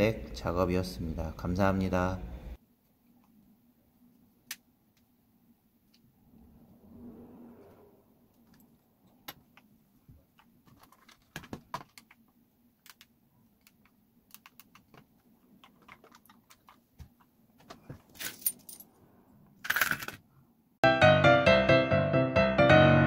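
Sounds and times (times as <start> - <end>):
keyring jangling: 18.1 - 18.9.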